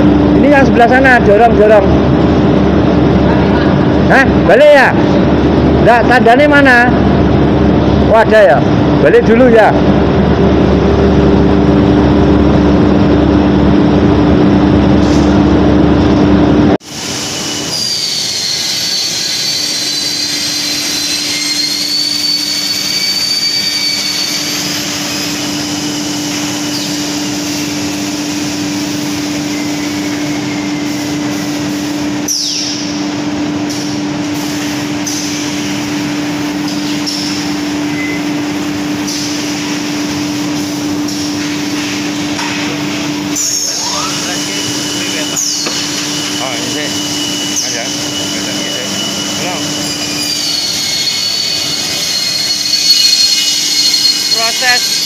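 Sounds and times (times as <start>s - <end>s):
loud rough noise: 0.0s - 32.2s
high whine: 0.0s - 55.0s.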